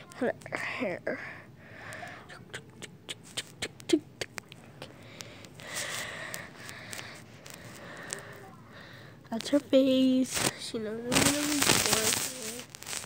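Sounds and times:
cat crunching dry food: 4.3 - 8.4
soft rustle: 9.3 - 13.0.

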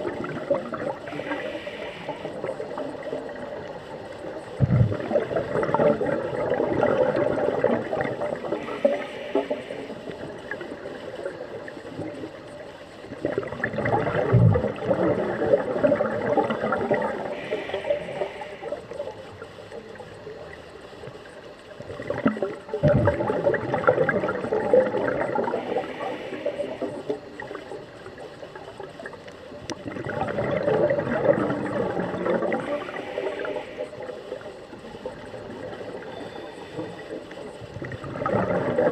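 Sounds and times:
regulator bubbles gurgling: 0.0 - 38.9
water noise: 0.0 - 38.9.

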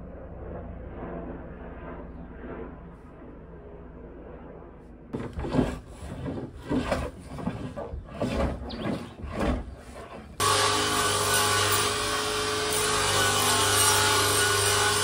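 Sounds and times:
hand tool scraping wooden board: 5.2 - 15.0
table saw cutting wood: 5.2 - 15.0.

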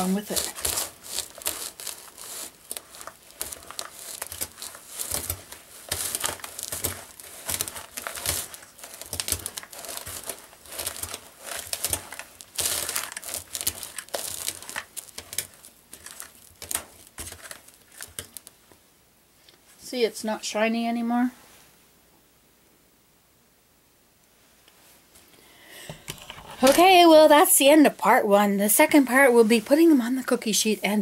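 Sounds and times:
spoon stirring stiff dough: 0.0 - 18.6.

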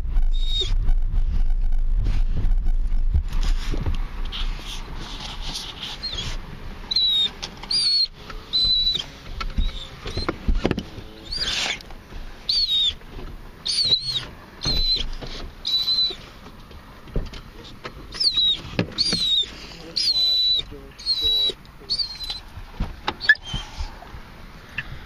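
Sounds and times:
dogs whining: 0.3 - 0.8, 5.9 - 13.0, 13.6 - 16.3, 18.1 - 22.5, 23.2 - 24.1.

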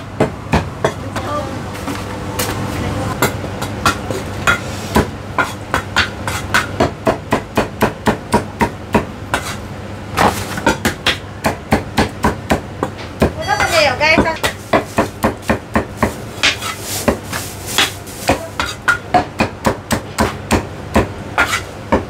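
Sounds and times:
cleaver chopping on wooden block: 10.2 - 22.0.

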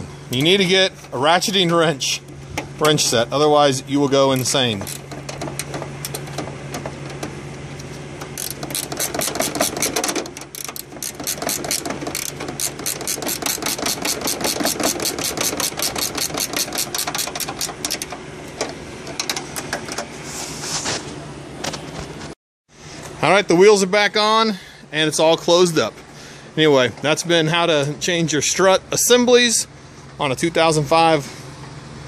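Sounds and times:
ratcheting wrench clicking: 4.3 - 6.4, 8.2 - 18.2.

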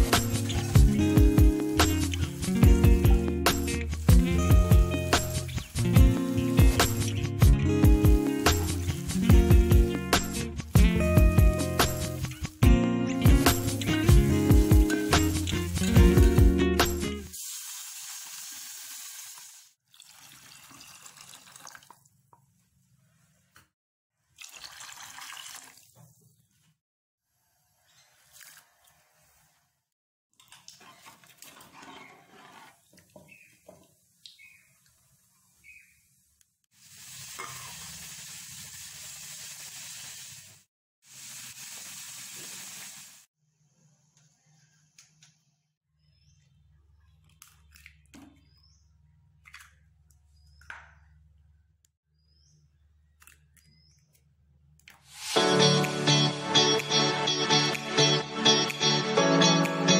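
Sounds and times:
water pouring into a pot: 17.3 - 22.1, 24.4 - 26.0.

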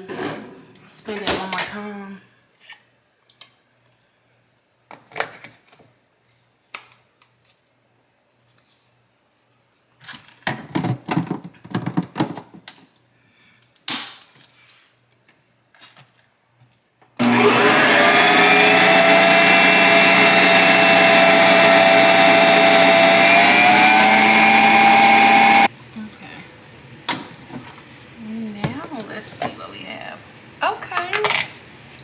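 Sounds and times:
motor whine: 17.2 - 25.7.

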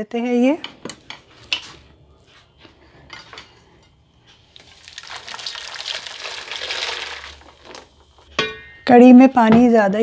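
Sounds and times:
liquid pouring into metal pot: 4.6 - 8.2.

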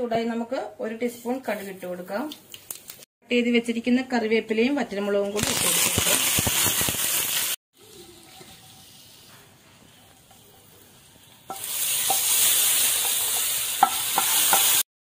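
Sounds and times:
spices sizzling in hot oil: 5.4 - 14.9.

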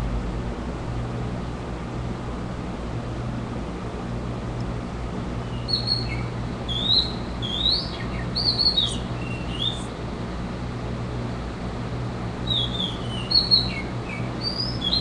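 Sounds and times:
steady low hum: 0.0 - 15.0
recorded birdsong chirps: 5.3 - 9.9, 12.4 - 15.0.

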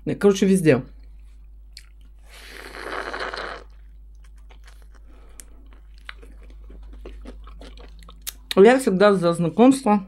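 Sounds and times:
person chewing and crunching: 1.1 - 8.6.

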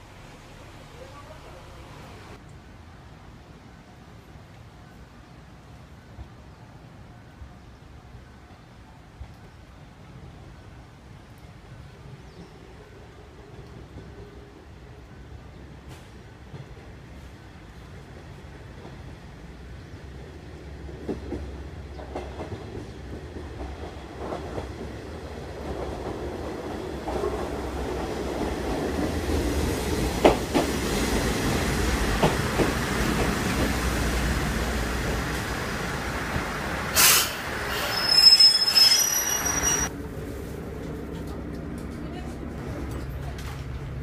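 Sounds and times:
diesel railcar engine rumble: 0.0 - 44.0
steady hum inside train car: 0.0 - 44.0
air hiss: 36.9 - 39.5
high brake squeals: 37.0 - 39.9.

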